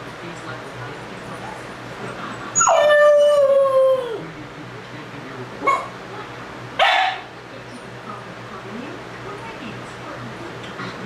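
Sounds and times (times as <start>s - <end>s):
puppy crying: 2.5s - 4.2s
puppy howling: 2.5s - 4.3s.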